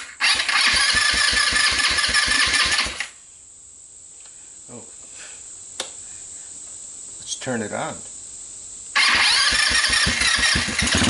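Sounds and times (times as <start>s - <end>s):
engine cranked by starter: 0.0s - 3.1s, 9.0s - 11.0s
faint click: 5.8s - 6.0s.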